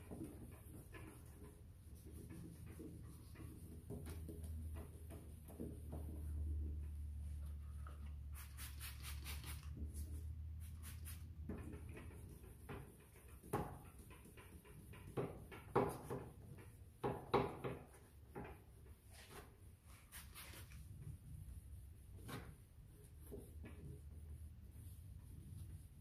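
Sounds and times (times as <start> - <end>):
spray bottle spritzes: 8.4 - 9.7.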